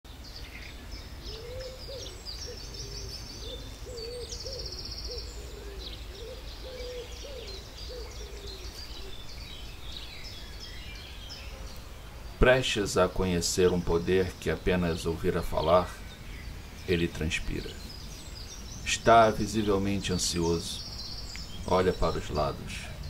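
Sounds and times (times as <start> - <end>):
small birds chirping: 0.1 - 23.0
low hooting bird call: 0.4 - 12.7.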